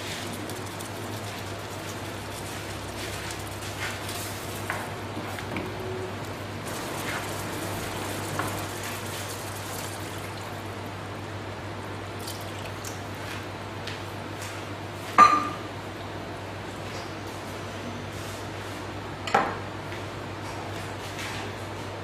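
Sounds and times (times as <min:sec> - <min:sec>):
water pouring into a pan: 0:00.0 - 0:04.7, 0:06.3 - 0:10.9, 0:12.1 - 0:13.0.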